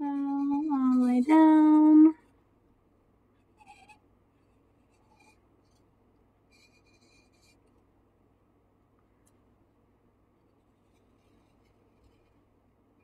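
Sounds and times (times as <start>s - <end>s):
marker scratching on pot: 0.0s - 2.1s, 3.5s - 5.9s, 6.5s - 7.7s.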